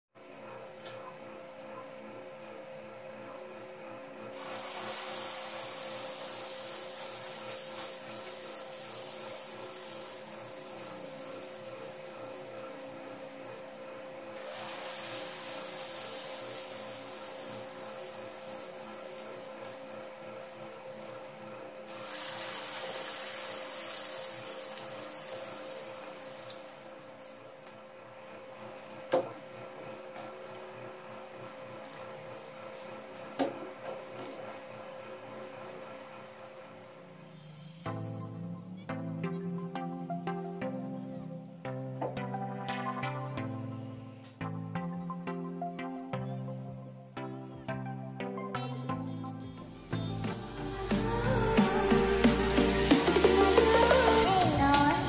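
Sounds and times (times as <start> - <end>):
batter sizzling in oil: 4.3 - 27.4, 28.2 - 37.9.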